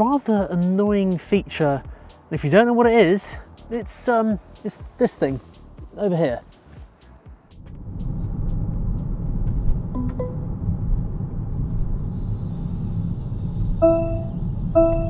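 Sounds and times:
car driving rumble: 7.5s - 15.0s
car warning chime beeping: 9.8s - 10.8s, 13.8s - 15.0s.

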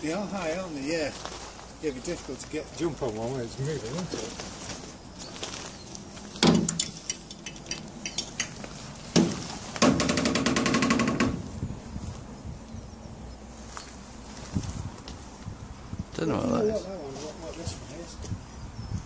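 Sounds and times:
sharp clicks: 6.4s - 8.8s
fast metal rattle: 6.4s - 11.4s
heavy thuds on steel wagon: 6.4s - 11.6s.

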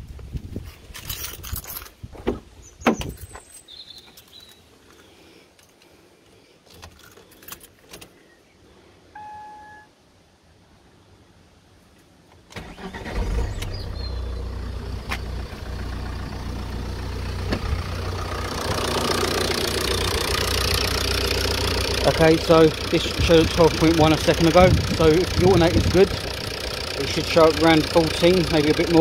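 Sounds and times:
short electronic beep: 9.2s - 9.9s
diesel engine starting and idling: 12.5s - 29.0s.

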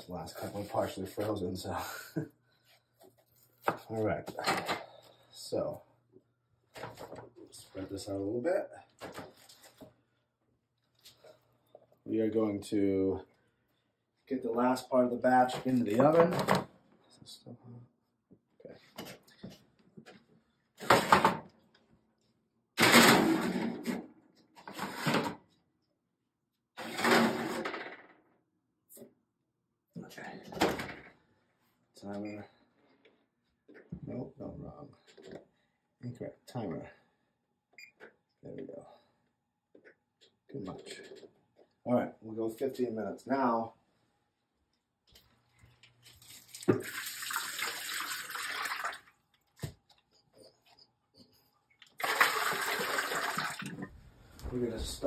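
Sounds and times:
faucet running into sink: 46.2s - 49.0s, 52.0s - 53.8s.

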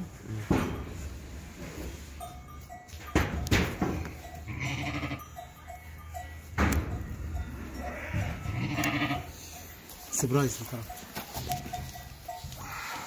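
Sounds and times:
sheep bleating: 4.5s - 5.2s, 7.8s - 9.4s
hoof shears clicking: 6.3s - 13.0s.

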